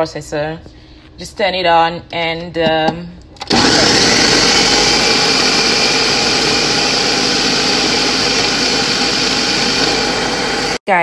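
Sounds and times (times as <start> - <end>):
food processor blending: 3.4 - 10.8.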